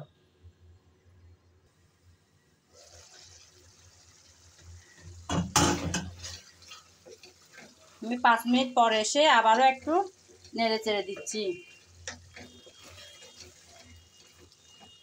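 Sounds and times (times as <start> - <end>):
curry simmering hiss: 1.7 - 15.0
spatula scraping a pan: 4.9 - 8.0, 9.7 - 15.0.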